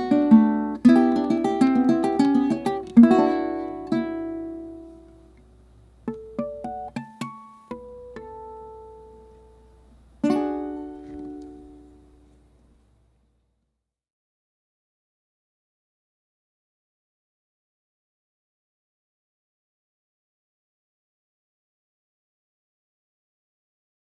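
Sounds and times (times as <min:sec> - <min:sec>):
plucked string instrument tango: 0:00.0 - 0:05.2, 0:06.0 - 0:09.4, 0:10.2 - 0:12.2.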